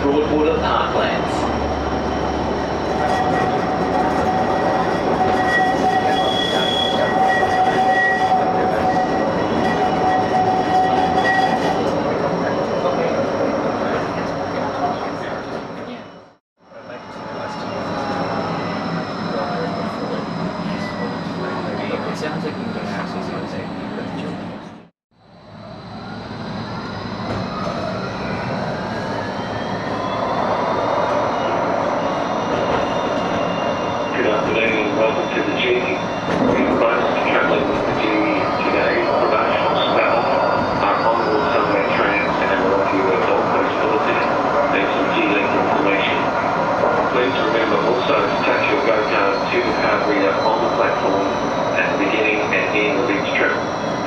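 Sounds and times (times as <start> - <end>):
tram wheels rumbling: 0.0 - 16.2, 25.4 - 54.0
wheels rumbling on rail: 0.0 - 16.3.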